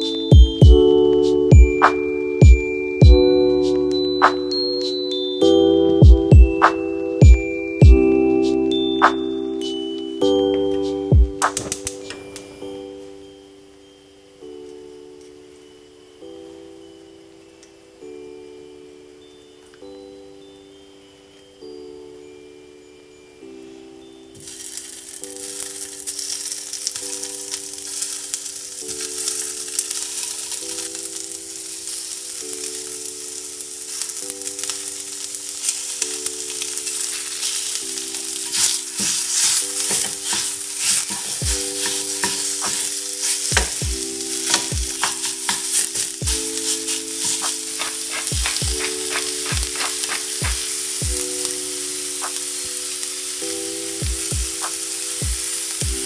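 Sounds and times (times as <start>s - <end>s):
soft background music: 0.0s - 56.0s
sausage sizzling in a skillet: 24.3s - 56.0s
wooden spoon scraping a pan: 35.6s - 51.0s.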